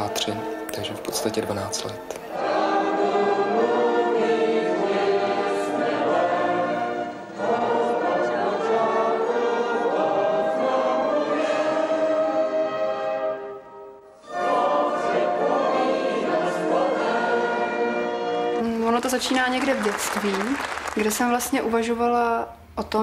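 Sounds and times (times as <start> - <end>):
congregation singing a hymn: 0.0 - 13.6, 14.2 - 18.7.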